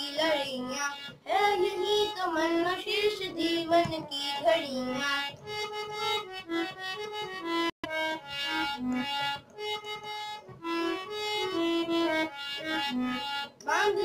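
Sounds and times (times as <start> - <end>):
boy singing: 0.0 - 5.4, 13.6 - 14.0
harmonium playing: 0.0 - 14.0.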